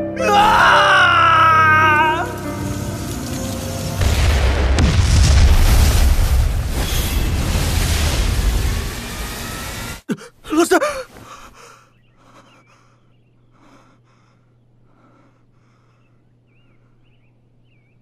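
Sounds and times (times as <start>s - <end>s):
rushing blast: 2.2s - 10.1s
young man gasping cry: 10.1s - 11.8s
heavy breaths: 10.1s - 17.2s
low steady hum: 12.0s - 18.0s.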